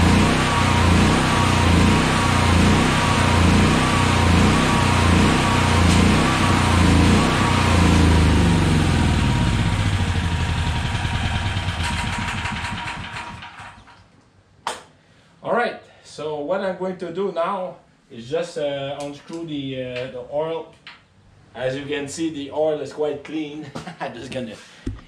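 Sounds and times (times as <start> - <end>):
generator engine running: 0.0 - 13.9.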